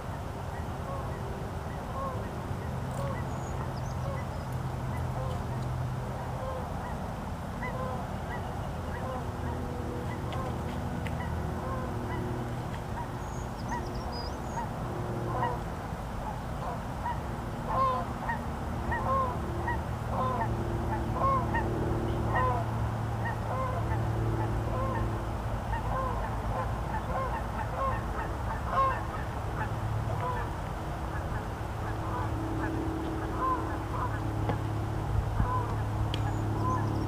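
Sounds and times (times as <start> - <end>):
steady low hum: 0.0 - 37.0
geese honking: 7.6 - 10.6, 11.2 - 12.3, 14.5 - 15.6, 16.6 - 25.1, 25.7 - 34.6, 35.3 - 37.0.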